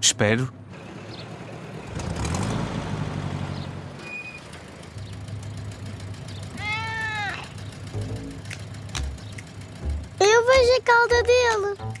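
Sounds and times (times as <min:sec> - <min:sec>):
car engine running: 0:00.7 - 0:12.0
cat meowing: 0:06.6 - 0:07.5.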